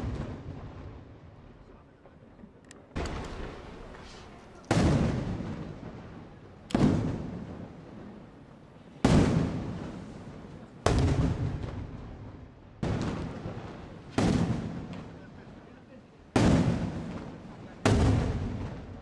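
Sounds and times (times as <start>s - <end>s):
firework shells bursting: 2.8s - 5.9s, 12.8s - 15.1s.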